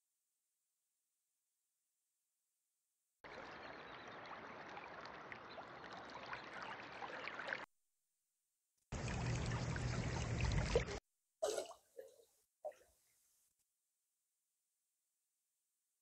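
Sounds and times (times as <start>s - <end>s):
small water splashes: 3.2s - 7.7s, 8.9s - 12.8s
stream water trickling: 3.2s - 7.7s, 8.9s - 12.8s.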